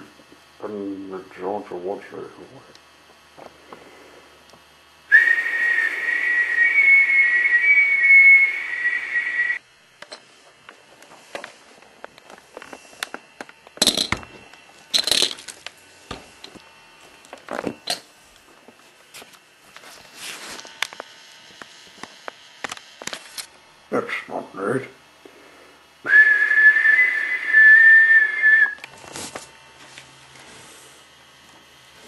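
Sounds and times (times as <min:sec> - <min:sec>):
whistle blast: 0:05.1 - 0:09.6, 0:26.1 - 0:28.8.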